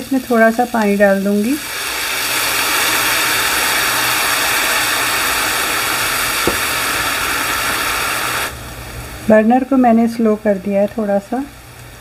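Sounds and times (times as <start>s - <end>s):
water sizzling in hot pan: 0.0s - 12.0s
light tap: 6.5s - 6.7s.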